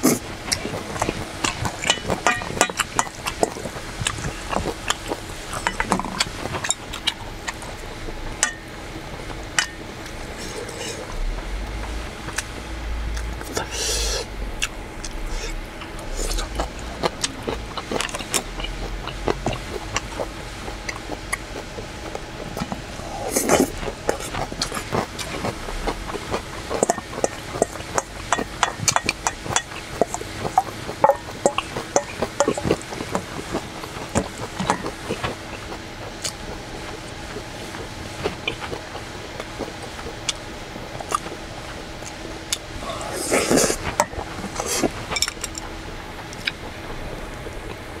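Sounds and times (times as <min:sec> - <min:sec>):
chewing and slurping noodles: 0:00.0 - 0:12.6, 0:13.2 - 0:47.8
utensils clinking on metal bowl: 0:00.6 - 0:03.5.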